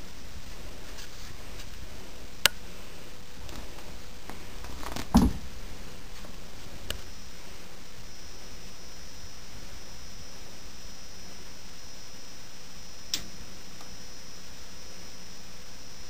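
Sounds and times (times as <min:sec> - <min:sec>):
background hiss: 0:00.0 - 0:16.0
soft low thump: 0:05.0 - 0:05.5
sharp click: 0:13.1 - 0:13.9.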